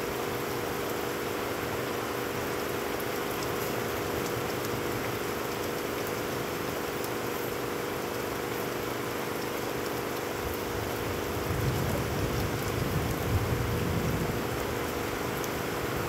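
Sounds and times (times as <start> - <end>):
heavy rain on puddled ground: 0.0 - 16.0
thunder rumbling: 11.5 - 14.6.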